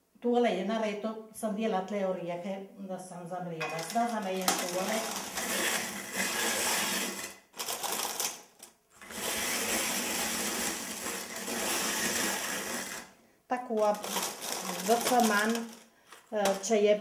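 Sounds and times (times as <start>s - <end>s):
hand-cranked grater rasping: 4.4s - 8.3s, 9.0s - 13.1s, 14.0s - 15.8s.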